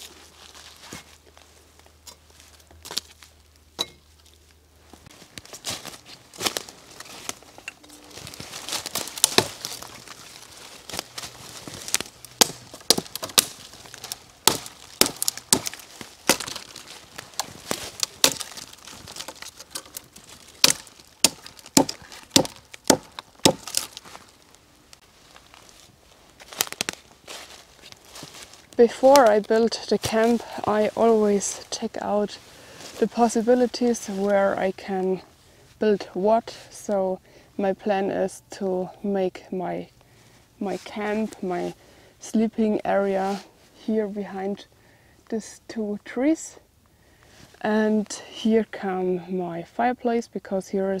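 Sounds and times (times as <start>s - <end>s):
wood chopping knocks and cracks: 8.6s - 9.9s, 11.9s - 24.1s.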